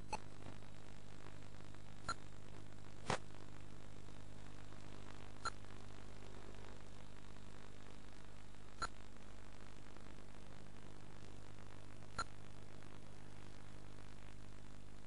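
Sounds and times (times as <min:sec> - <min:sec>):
electrical hum and hiss: 0:00.0 - 0:15.0.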